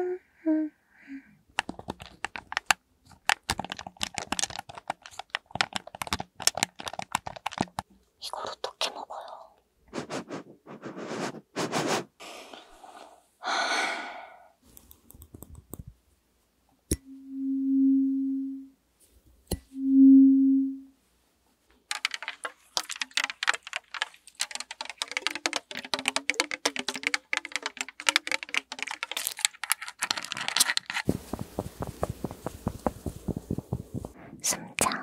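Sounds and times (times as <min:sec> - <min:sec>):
sniffing into microphone: 0:09.9 - 0:13.2
tapping on plastic bottle: 0:21.9 - 0:34.1.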